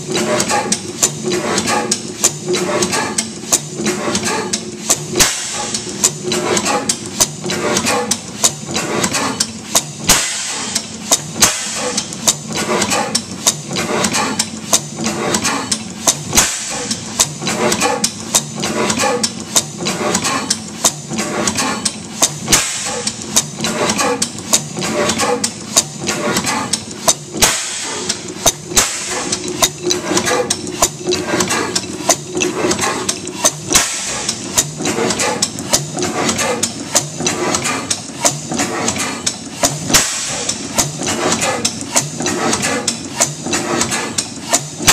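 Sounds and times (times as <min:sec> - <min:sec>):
gas engine running: 0:00.0 - 0:44.9
mechanical clicks and knocks: 0:00.0 - 0:44.9.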